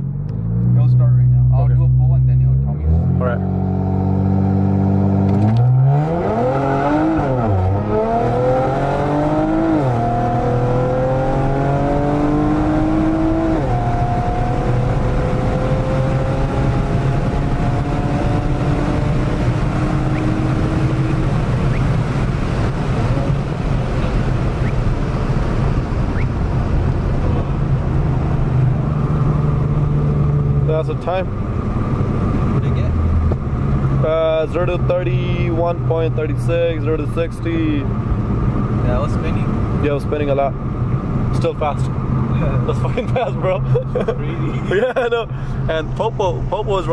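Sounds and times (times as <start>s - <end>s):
road noise: 0.0s - 46.9s
car accelerating through gears: 0.2s - 46.9s.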